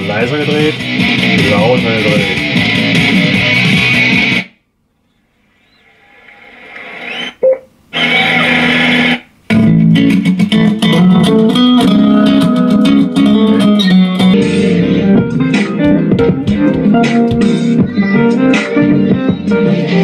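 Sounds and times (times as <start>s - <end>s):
guitar music playing loudly: 0.0s - 4.5s, 8.0s - 20.0s
music snippets from speaker: 0.0s - 4.5s, 9.5s - 20.0s.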